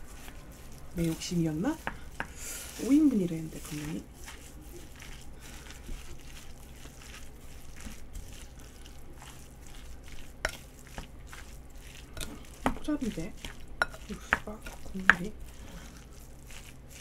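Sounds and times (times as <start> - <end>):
light sizzle: 0.0 - 17.0
stew stirred with scraping: 0.0 - 17.0
utensil clinking on pan: 13.8 - 15.2.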